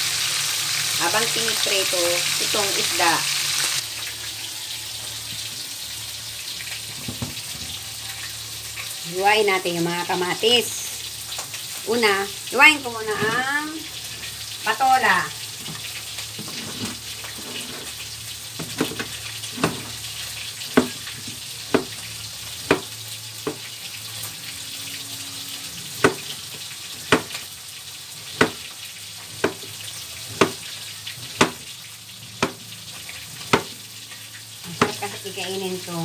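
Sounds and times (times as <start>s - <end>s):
fish frying in oil: 0.0s - 36.0s
knife chopping on plastic board: 20.8s - 21.0s, 29.4s - 29.6s, 31.4s - 31.6s, 33.5s - 33.7s.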